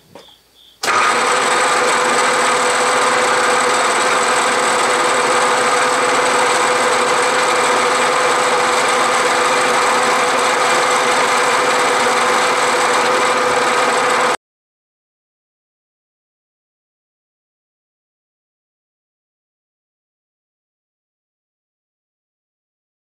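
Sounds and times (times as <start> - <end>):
milling machine whine: 0.8 - 14.4.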